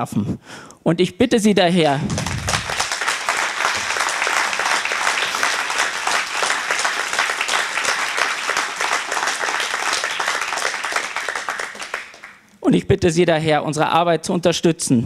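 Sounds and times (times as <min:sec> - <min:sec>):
audience applauding: 0:01.8 - 0:12.5.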